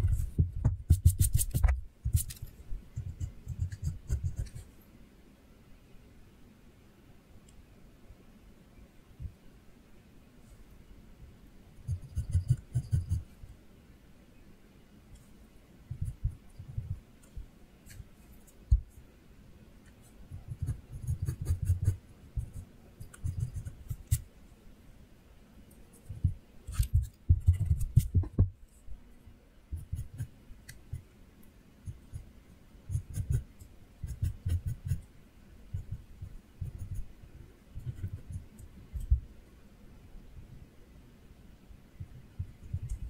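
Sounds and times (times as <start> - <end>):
pencil scratching on paper: 0.0 - 2.4, 3.0 - 4.7, 11.8 - 13.3, 20.4 - 24.2, 25.9 - 28.3, 29.8 - 30.3, 32.9 - 35.0, 35.8 - 37.1, 37.8 - 39.1.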